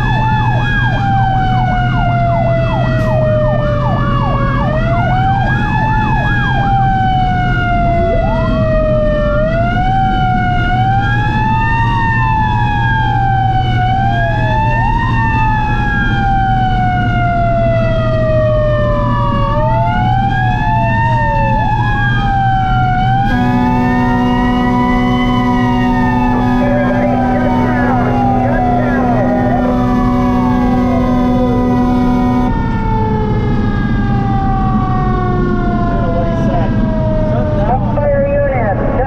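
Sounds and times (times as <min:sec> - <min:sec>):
engine and road noise: 0:00.0 - 0:39.0
fire truck sirens wailing: 0:00.0 - 0:39.0
horn blast: 0:23.2 - 0:32.6.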